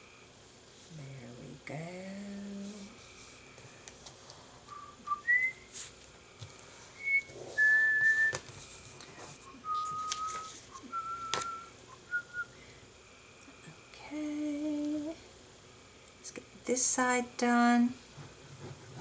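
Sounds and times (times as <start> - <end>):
person whistling softly: 4.7 - 5.7, 7.0 - 8.5, 9.4 - 12.6
paper and card handling taps: 9.8 - 10.6, 11.3 - 11.5.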